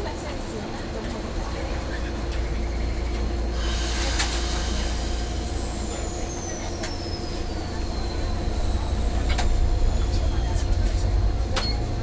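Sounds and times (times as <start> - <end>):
tram low hum: 0.0 - 12.0
air hiss: 3.6 - 5.8.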